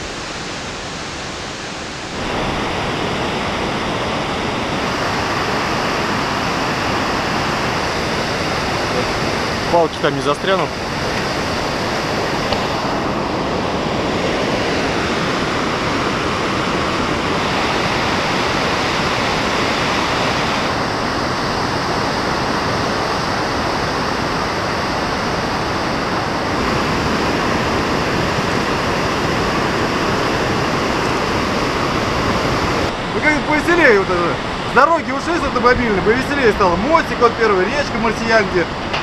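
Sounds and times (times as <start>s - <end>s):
river rapids rushing: 0.0s - 39.0s.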